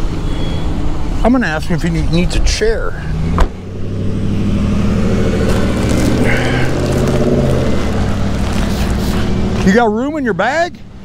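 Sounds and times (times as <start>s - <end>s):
car engine running: 0.0s - 11.0s
car door shutting: 3.3s - 3.6s.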